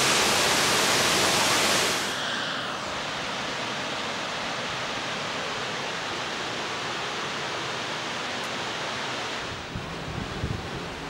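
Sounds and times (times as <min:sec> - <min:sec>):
waterfall rushing: 0:00.0 - 0:09.6.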